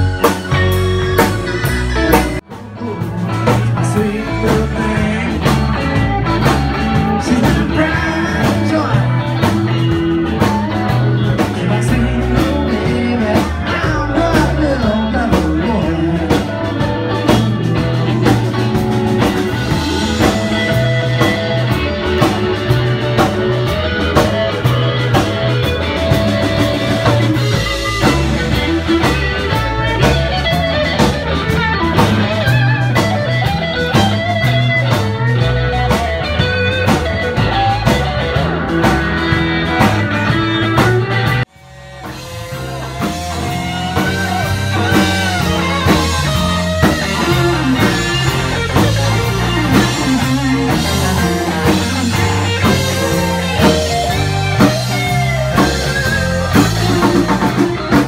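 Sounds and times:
drum kit: 0.0s - 58.0s
electric guitar lead: 0.0s - 58.0s.

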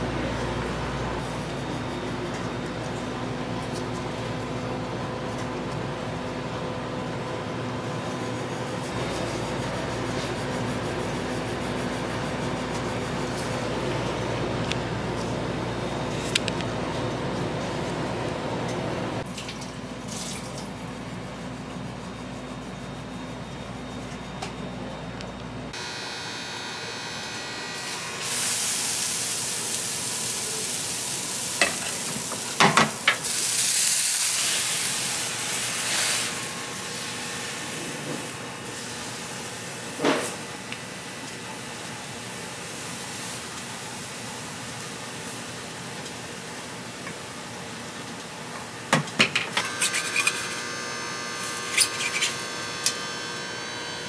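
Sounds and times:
batter sizzling on a griddle: 27.8s - 47.0s.

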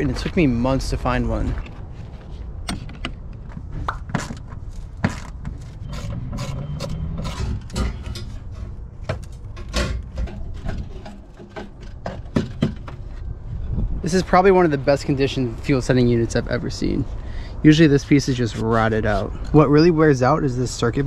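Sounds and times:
metal knocks and scraping: 1.4s - 13.4s.

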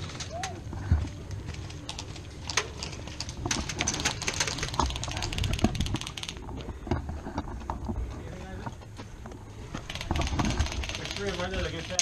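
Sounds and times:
rapid airsoft gunfire: 9.9s - 12.0s.

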